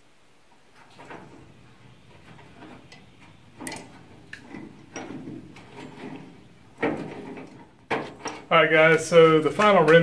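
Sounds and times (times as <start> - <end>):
metal latch clicks and clunks: 2.2 - 8.5.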